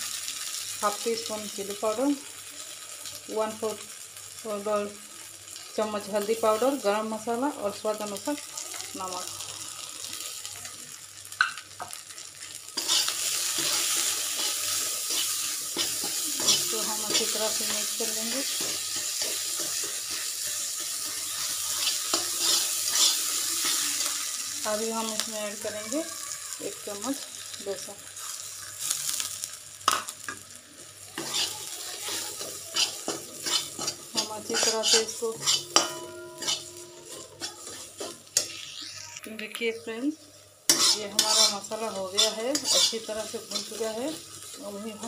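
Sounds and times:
oil sizzling: 0.0 - 45.0
spatula scraping a pan: 12.8 - 24.2, 31.1 - 39.0, 40.7 - 44.5
metal clink on pan: 33.5 - 38.6.

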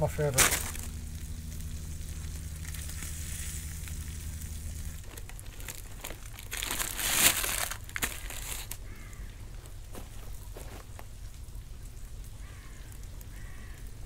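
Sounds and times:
fire crackling: 0.0 - 14.0
low steady hum: 0.0 - 14.0
shells scraping and crackling: 0.2 - 11.1.

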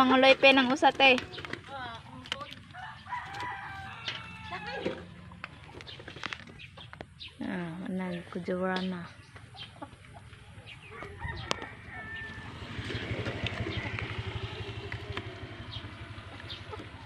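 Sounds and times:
rooster crowing: 2.7 - 5.1, 10.8 - 13.1.

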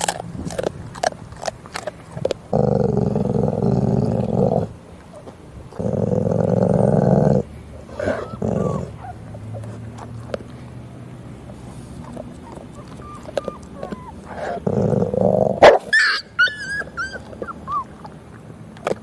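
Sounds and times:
crunching chews: 0.0 - 4.4, 8.0 - 10.8, 11.4 - 15.1, 17.1 - 19.0
dog growling: 0.0 - 4.8, 5.7 - 9.6, 11.9 - 15.7.

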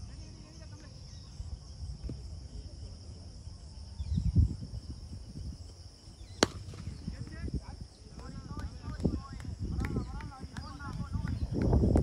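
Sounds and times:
insects chirring: 0.0 - 12.0
bat striking ball: 6.4 - 7.3.

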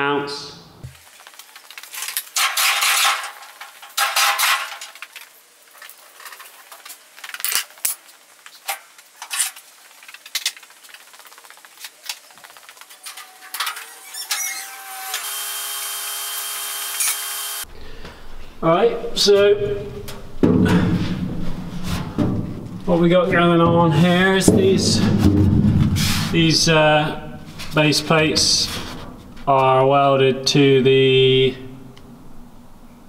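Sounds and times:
metal scraping on concrete: 1.9 - 5.2
steel tubing clanking: 2.0 - 5.0.

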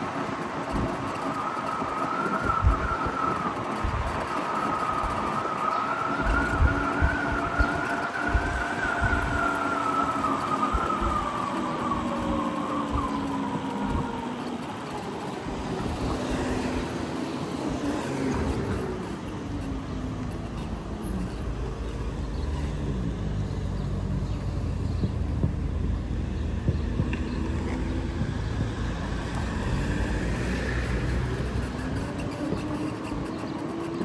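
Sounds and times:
road and wind noise: 0.0 - 34.0
cars passing: 9.7 - 23.3.

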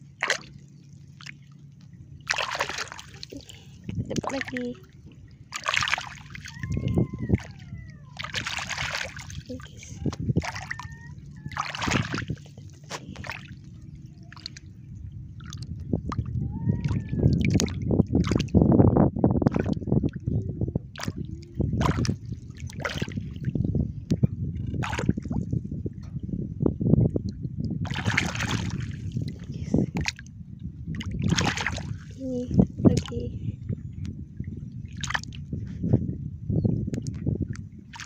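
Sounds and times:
hands splashing in shallow water: 2.3 - 3.6, 5.5 - 13.7, 21.8 - 23.2, 27.8 - 29.2, 31.2 - 32.2.

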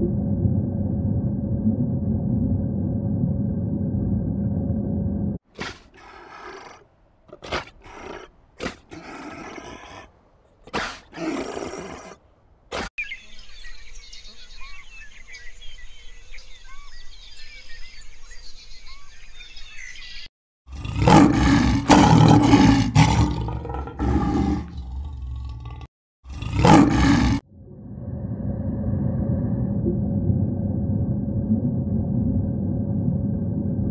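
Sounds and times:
small birds chirping: 13.0 - 20.3
deep roaring animal calls: 20.7 - 33.9.

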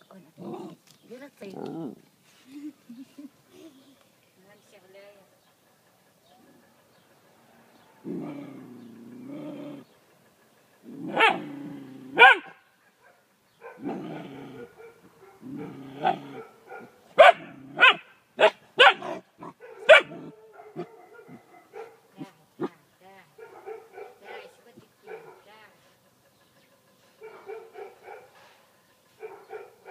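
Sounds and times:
dog growling: 0.3 - 0.8, 1.4 - 2.0, 7.8 - 10.1, 10.8 - 12.3, 13.8 - 17.9, 19.0 - 21.6
dog yelping barks: 11.0 - 11.5, 12.2 - 14.0, 14.6 - 22.7, 23.4 - 25.5, 27.2 - 28.3, 29.2 - 29.9.

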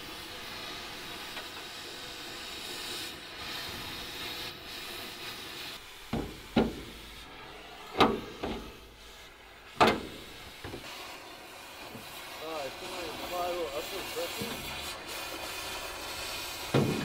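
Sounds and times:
cutting torch hissing: 0.0 - 17.0
sheet metal knocks and clanks: 6.1 - 7.0, 8.0 - 8.7, 9.8 - 10.8, 16.7 - 17.0.

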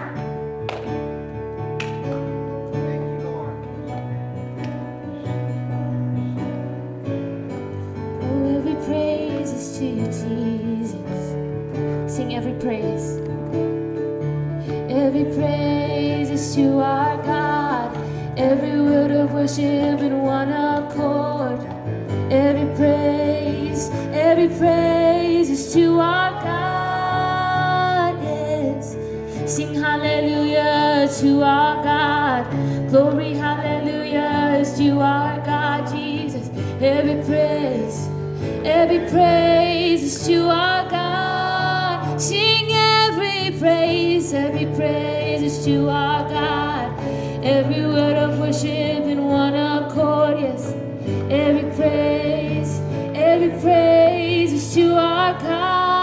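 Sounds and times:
woman singing: 8.2 - 11.4, 14.9 - 56.0.

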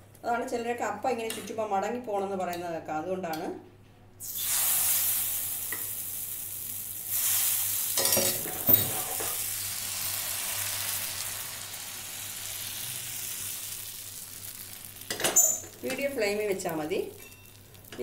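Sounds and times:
batter sizzling in a hot pan: 4.2 - 18.0.

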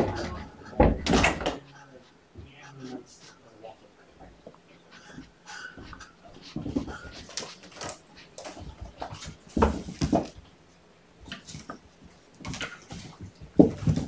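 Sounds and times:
kittens knocking and thumping: 12.4 - 14.0.

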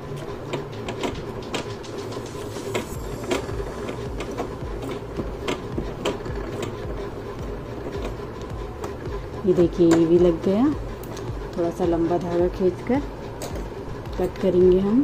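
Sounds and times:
sewing machine motor hum: 0.0 - 15.0
needle mechanism clicking: 0.1 - 10.3.

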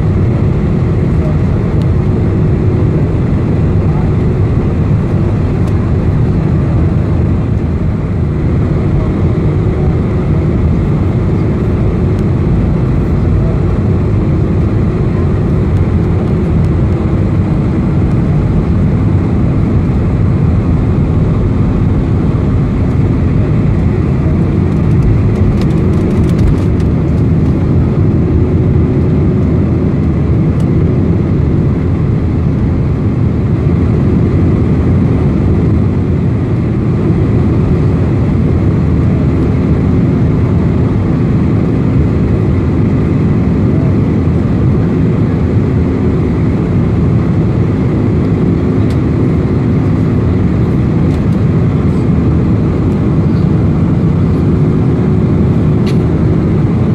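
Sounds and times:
jet engines roaring in cabin: 0.0 - 56.9.

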